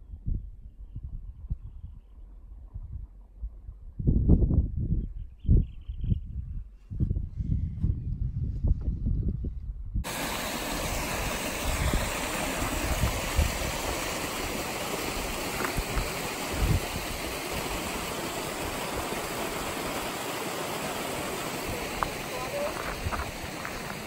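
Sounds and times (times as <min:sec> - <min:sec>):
stream running over rocks: 0:10.1 - 0:24.0.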